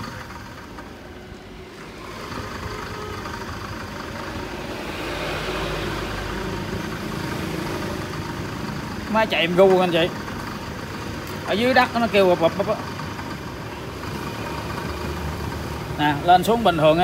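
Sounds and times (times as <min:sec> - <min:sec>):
drill press motor running: 0:00.0 - 0:09.0.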